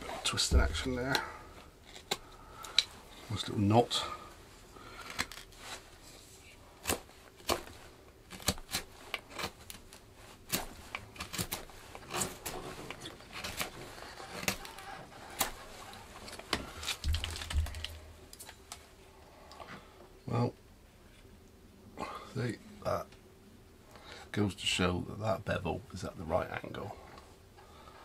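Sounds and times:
knife carving wood: 0:06.8 - 0:18.0.

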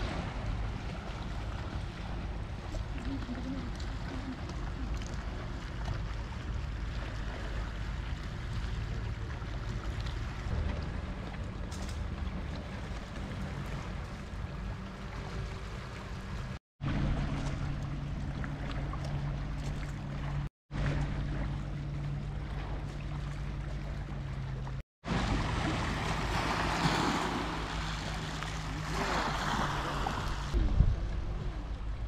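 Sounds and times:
steady low hum: 0:00.0 - 0:32.0
small waves washing over pebbles: 0:25.1 - 0:30.6
wind on microphone: 0:25.1 - 0:32.0.

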